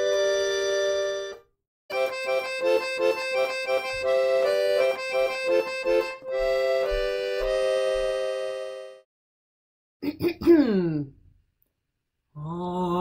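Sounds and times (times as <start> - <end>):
held chord: 0.0 - 9.0
tune of quick notes: 0.0 - 9.0.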